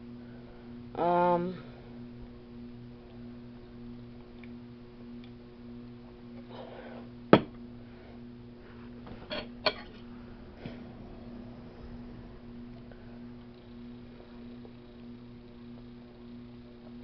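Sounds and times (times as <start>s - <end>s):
steady low hum: 0.0s - 17.0s
cup set down on table: 7.3s - 7.6s.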